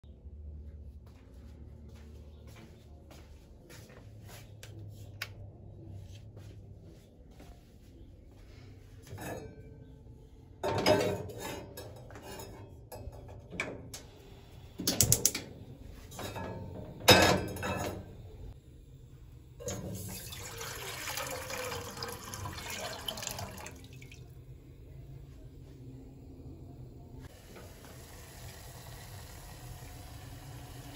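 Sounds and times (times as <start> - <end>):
pot and griddle clanking: 10.6 - 13.8, 16.1 - 18.2
water running: 19.6 - 24.4.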